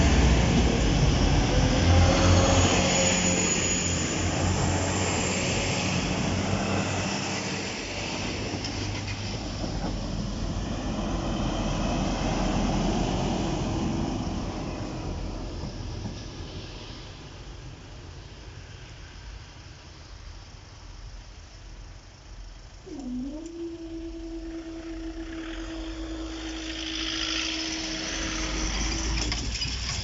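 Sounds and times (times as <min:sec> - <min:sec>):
diesel train engines running: 0:00.0 - 0:18.9, 0:22.9 - 0:30.0
train wheels on rail: 0:00.0 - 0:19.2.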